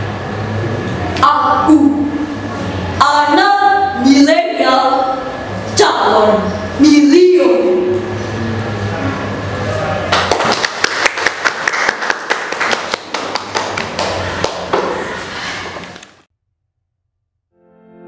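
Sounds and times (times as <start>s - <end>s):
small audience applauding: 10.1s - 14.9s.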